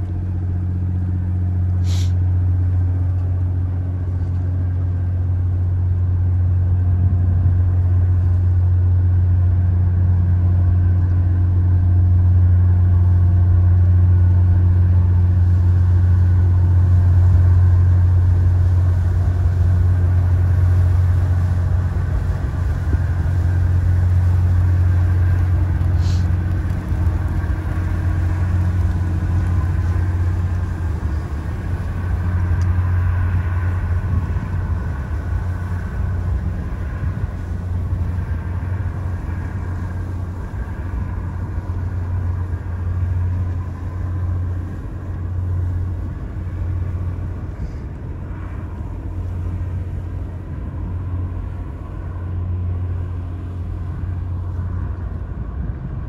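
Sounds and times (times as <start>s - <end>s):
ship engine rumble: 0.0s - 56.0s.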